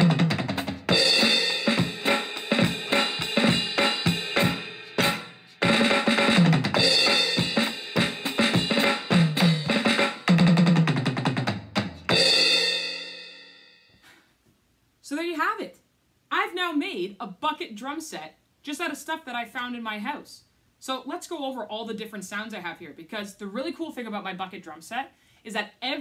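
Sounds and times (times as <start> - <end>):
fast drum kit beat: 0.0 - 13.2.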